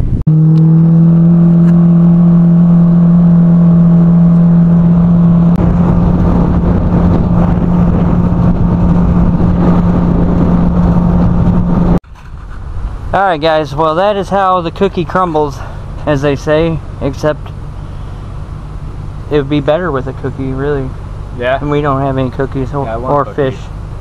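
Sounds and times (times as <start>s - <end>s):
outboard motor running: 0.1s - 12.0s.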